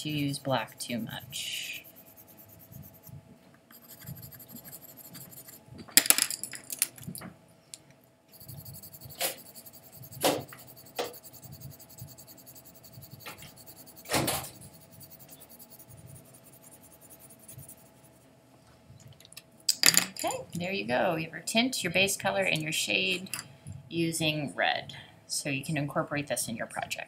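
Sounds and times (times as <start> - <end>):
pencil scratching on paper: 0.0 - 3.1, 3.7 - 5.6, 8.3 - 18.2.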